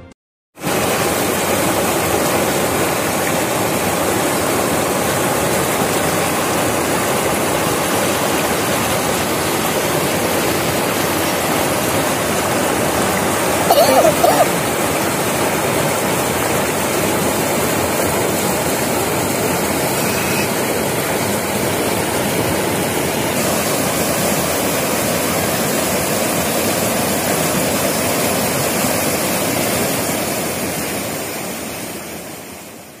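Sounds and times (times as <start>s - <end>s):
floodwater rushing: 0.6s - 33.0s.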